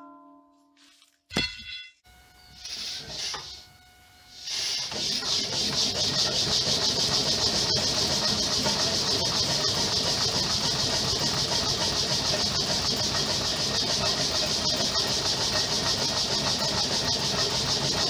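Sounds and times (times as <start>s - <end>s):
steady hiss: 2.6s - 4.9s
engine quick pulsing beat: 4.5s - 18.0s.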